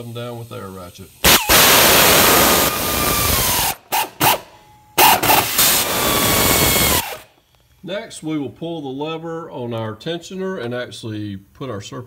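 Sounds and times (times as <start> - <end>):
air ratchet whine and hiss: 1.2 - 4.4, 5.0 - 7.3.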